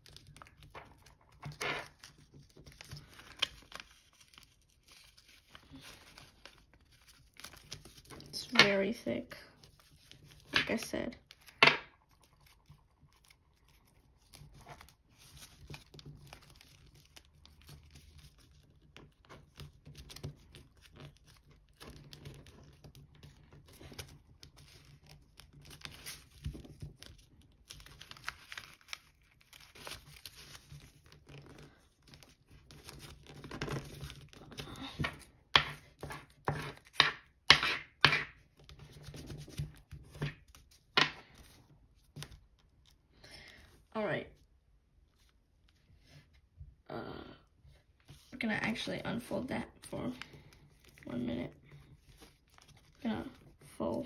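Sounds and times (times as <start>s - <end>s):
foil paper crinkling: 0.0s - 8.4s, 11.2s - 37.0s, 50.1s - 54.0s.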